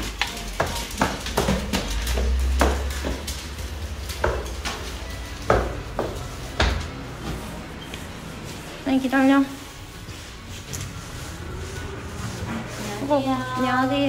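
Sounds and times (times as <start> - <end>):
hard objects clicking and knocking: 0.0 - 7.0.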